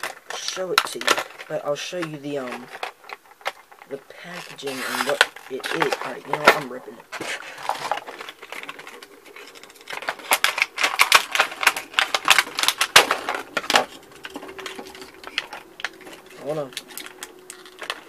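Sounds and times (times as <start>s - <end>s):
packaging tearing and crackling: 0.0s - 18.0s.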